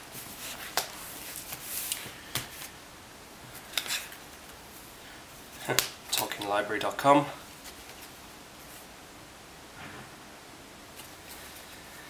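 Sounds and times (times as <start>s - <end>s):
cardboard and books rustling: 0.0s - 2.8s, 3.4s - 8.9s, 10.9s - 12.0s.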